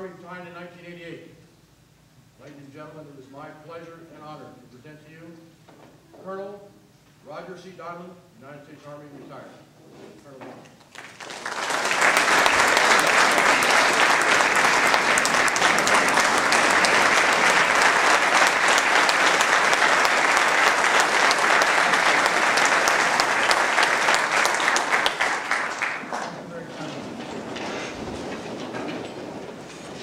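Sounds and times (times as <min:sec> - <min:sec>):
audience applauding: 0:10.8 - 0:30.0.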